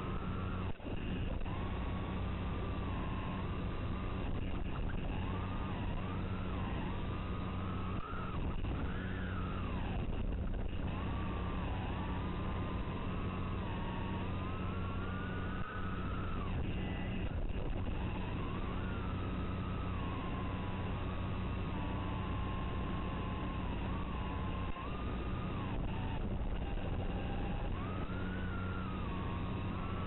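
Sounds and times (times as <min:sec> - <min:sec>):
electrical hum and hiss: 0:00.0 - 0:30.0
quadcopter motors whining: 0:00.0 - 0:30.0.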